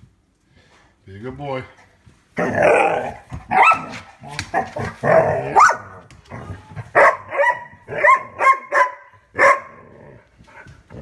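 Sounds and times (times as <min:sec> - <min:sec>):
dog barking: 0:03.5 - 0:04.0, 0:05.5 - 0:06.0, 0:06.9 - 0:09.8.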